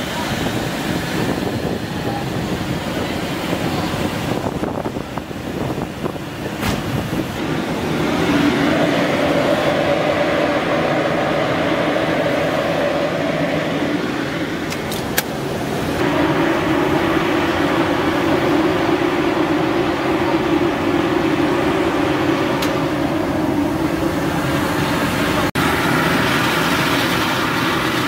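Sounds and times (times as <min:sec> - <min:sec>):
steady hum: 0:07.2 - 0:27.6.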